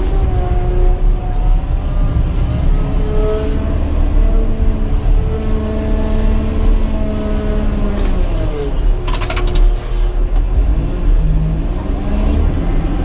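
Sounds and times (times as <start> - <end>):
heavy diesel engine rumble: 0.0 - 13.0
rattle of clicks: 9.0 - 9.8.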